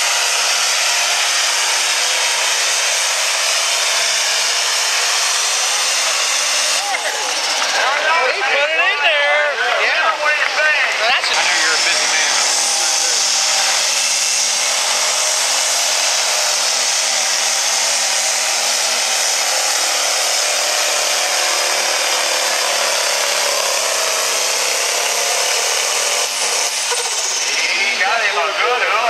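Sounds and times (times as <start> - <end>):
diesel engine howling at full load: 0.0 - 9.3, 9.9 - 29.0.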